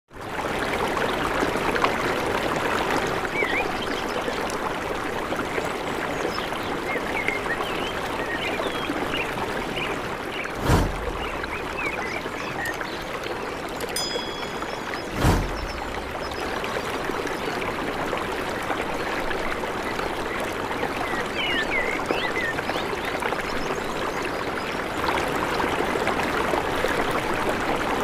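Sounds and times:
stream splashing over stones: 0:00.2 - 0:28.0
birds chirping: 0:07.2 - 0:17.5
low thump: 0:10.6 - 0:11.6, 0:15.1 - 0:16.3.

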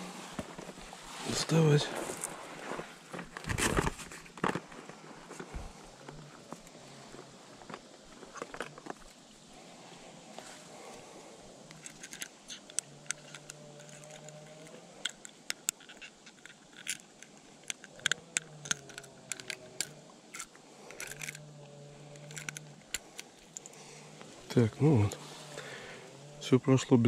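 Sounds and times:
insect buzzing: 0:04.9 - 0:26.5
metallic clicks and scrapes of tool: 0:11.7 - 0:21.4, 0:22.1 - 0:23.8.

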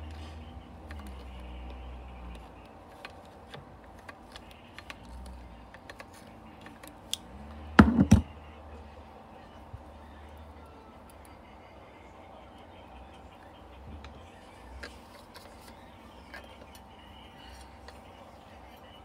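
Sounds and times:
clatter of metal knocks: 0:07.8 - 0:08.3.

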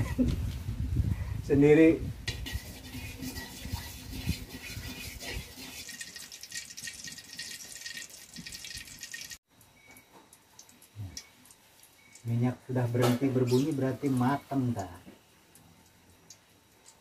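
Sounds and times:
oil crackling in a wok: 0:02.2 - 0:09.4.

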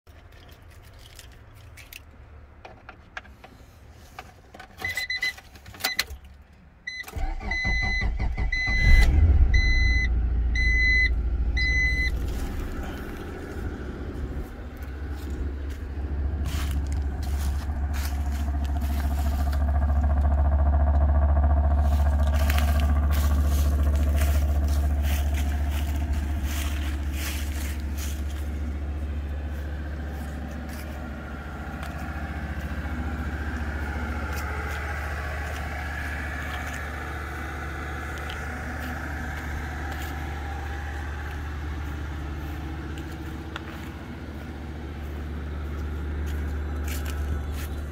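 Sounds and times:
dashboard warning chime beeping: 0:04.8 - 0:06.1, 0:06.9 - 0:12.8
car starter cranking: 0:04.8 - 0:41.6
car engine revving and idling: 0:07.1 - 0:47.9
footsteps crunching dry leaves: 0:12.1 - 0:20.2, 0:21.7 - 0:47.9.

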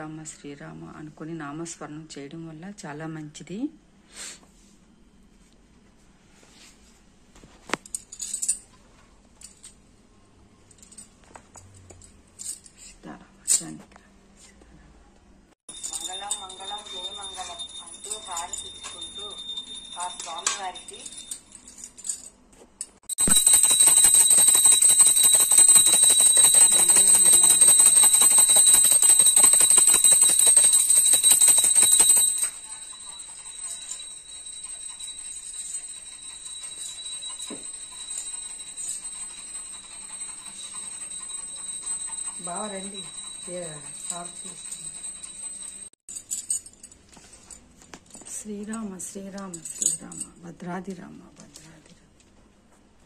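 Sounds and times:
bell rung rapidly: 0:15.7 - 0:21.6, 0:23.1 - 0:46.5
small object clinking: 0:23.0 - 0:39.3.

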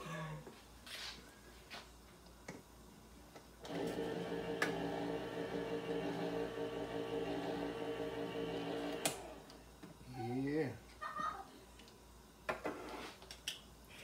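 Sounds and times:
electric can opener motor hum: 0:03.6 - 0:09.6.

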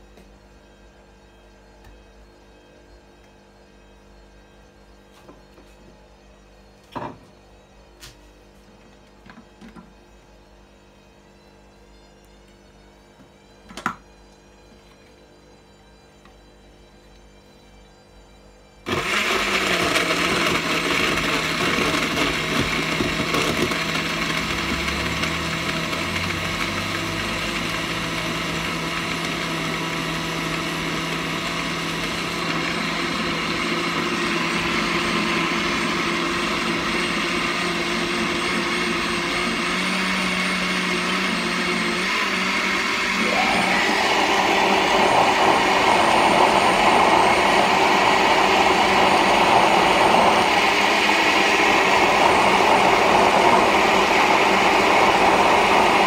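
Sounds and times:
blender motor running: 0:18.8 - 0:56.0.

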